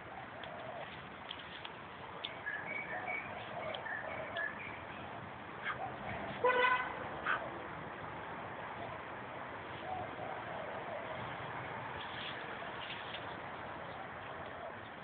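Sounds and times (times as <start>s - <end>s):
outdoor background hiss: 0.0s - 15.0s
faint bird chirps: 2.3s - 4.9s
horn toot: 6.4s - 7.4s.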